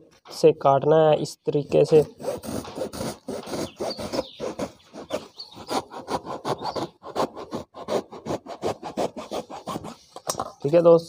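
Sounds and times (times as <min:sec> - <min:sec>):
knife sawing through foam: 0:01.7 - 0:10.2.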